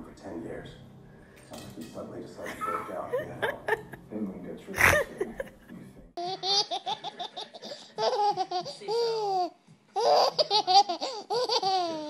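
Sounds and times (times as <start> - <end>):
baby laughing: 2.4 - 4.0, 4.8 - 12.0.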